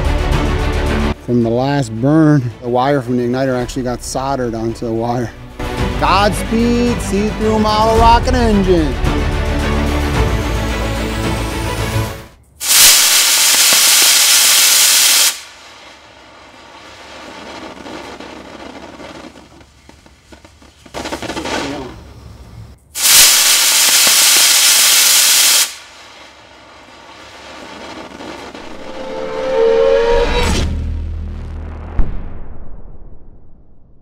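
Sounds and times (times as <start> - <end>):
rocket engine thrust hiss: 12.6 - 16.1, 23.0 - 26.4.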